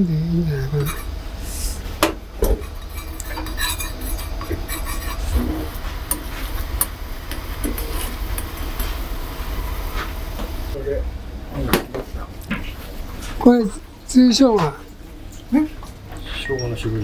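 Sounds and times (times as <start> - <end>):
low burner rumble: 0.0 - 17.0
spoon scraping and clinking pan: 0.8 - 1.1, 2.4 - 9.0.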